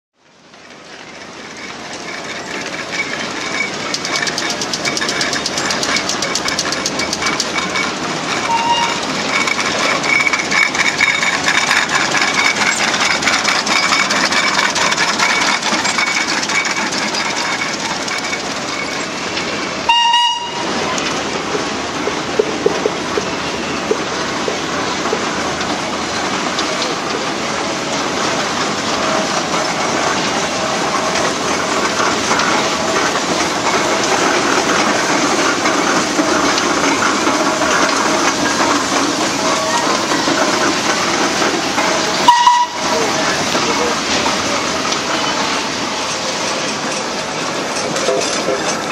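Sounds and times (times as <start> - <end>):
steam engines clanking and hissing: 0.3 - 48.9
steam whistle blast: 8.5 - 9.0, 19.9 - 20.7, 42.2 - 42.8.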